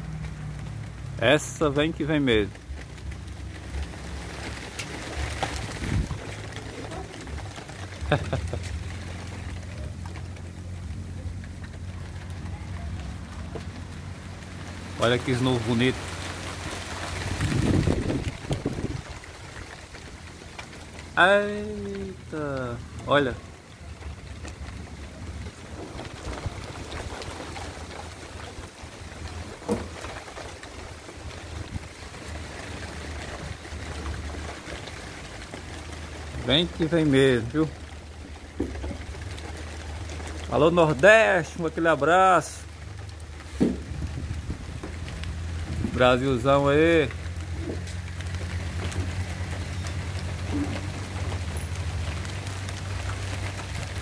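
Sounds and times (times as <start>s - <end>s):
rain hissing: 0.0s - 54.0s
wind rumbling on microphone: 2.0s - 41.4s, 42.6s - 54.0s.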